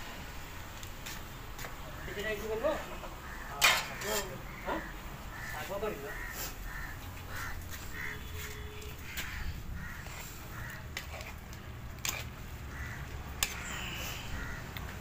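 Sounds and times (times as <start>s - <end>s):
crows cawing: 2.0s - 11.2s, 12.6s - 15.0s.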